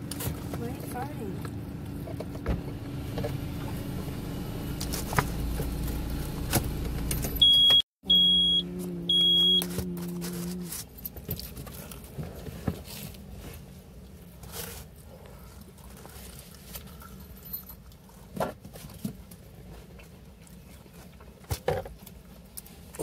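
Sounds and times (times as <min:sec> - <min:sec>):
car engine idling: 0:00.0 - 0:10.5
short high-pitched beeps: 0:07.4 - 0:09.7.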